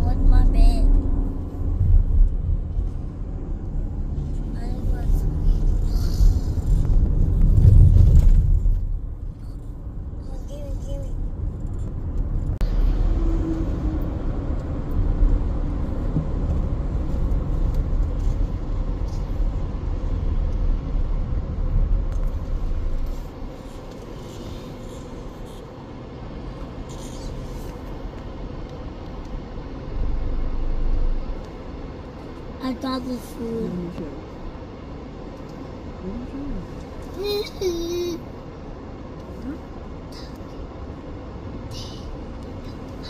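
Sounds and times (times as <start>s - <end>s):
car road and engine rumble: 0.0s - 43.0s.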